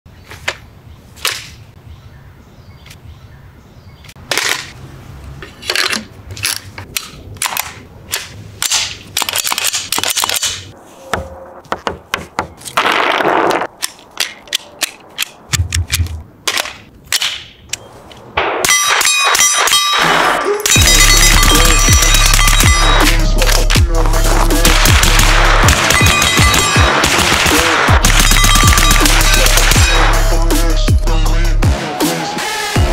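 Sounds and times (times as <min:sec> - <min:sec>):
rifle metallic clicks: 0:05.7 - 0:10.7, 0:13.8 - 0:18.3
rapid rifle gunfire: 0:24.6 - 0:30.1.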